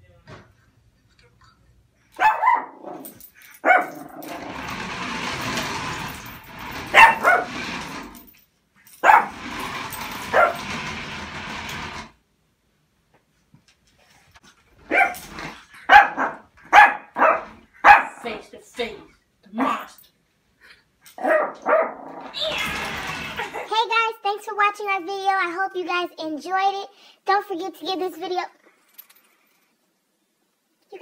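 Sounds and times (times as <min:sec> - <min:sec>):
puppy barking: 0:02.2 - 0:04.2, 0:06.9 - 0:07.5, 0:09.0 - 0:09.4, 0:10.3 - 0:10.6, 0:14.9 - 0:18.2, 0:21.2 - 0:22.1.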